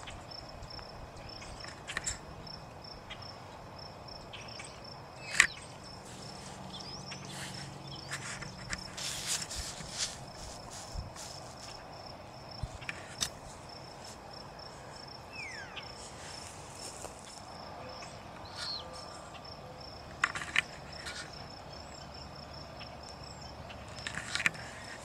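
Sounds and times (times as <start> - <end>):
cricket chirping: 0.0 - 25.0.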